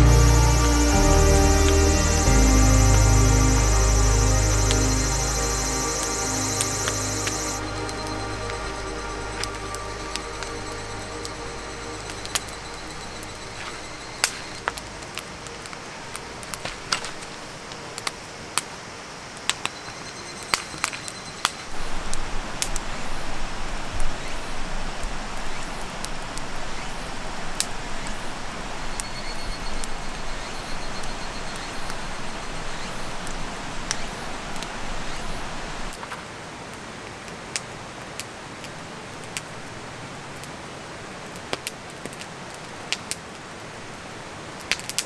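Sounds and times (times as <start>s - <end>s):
river rushing: 0.0s - 16.4s
campfire crackling and popping: 0.0s - 17.4s, 41.3s - 43.7s, 44.6s - 45.0s.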